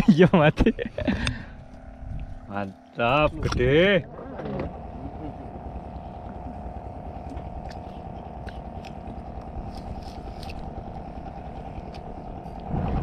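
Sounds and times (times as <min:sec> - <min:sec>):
boat engine hum: 0:00.0 - 0:13.0
low rumble: 0:03.1 - 0:13.0.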